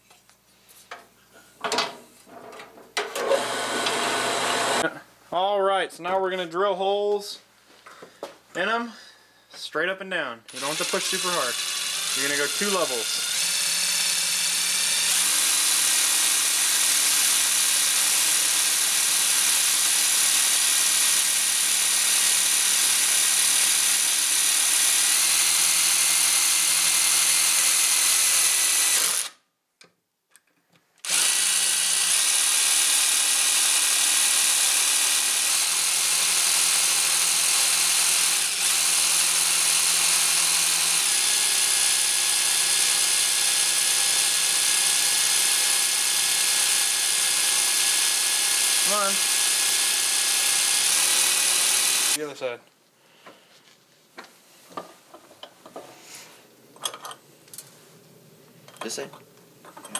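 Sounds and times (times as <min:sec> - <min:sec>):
electric drill drilling into metal: 0:03.0 - 0:04.9, 0:10.5 - 0:29.4, 0:31.0 - 0:52.2.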